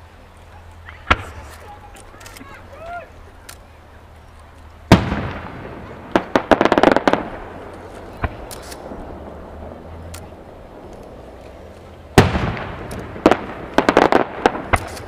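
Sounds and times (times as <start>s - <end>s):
crackling firework pops: 0.8s - 2.4s, 4.9s - 9.1s, 10.1s - 15.0s
firework boom: 4.9s - 7.5s, 12.2s - 15.0s.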